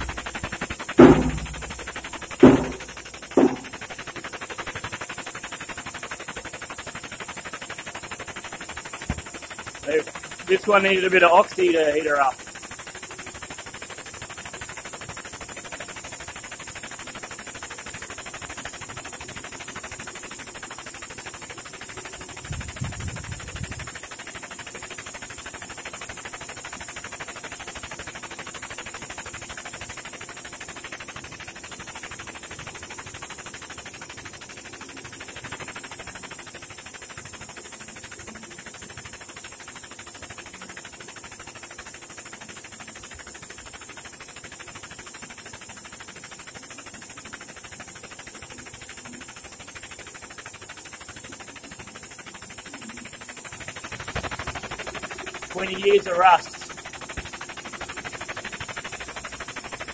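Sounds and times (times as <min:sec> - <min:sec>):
hydraulic press running: 0:00.0 - 0:03.8.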